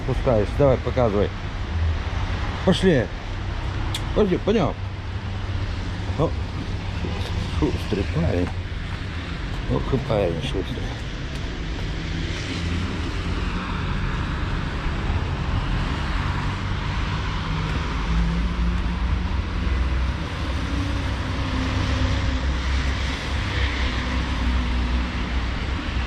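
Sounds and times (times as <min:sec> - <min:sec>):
low traffic rumble: 0:00.0 - 0:26.0
tyres hissing on wet road: 0:12.0 - 0:26.0.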